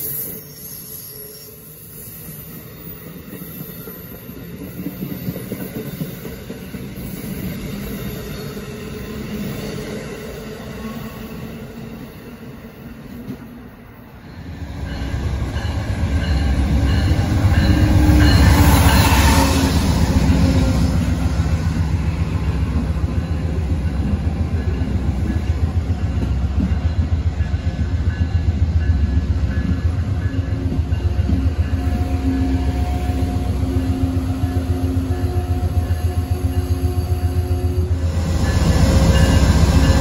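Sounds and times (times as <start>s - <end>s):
passenger train passing: 0.0s - 40.0s
train wheels clicking on rails: 3.0s - 10.0s.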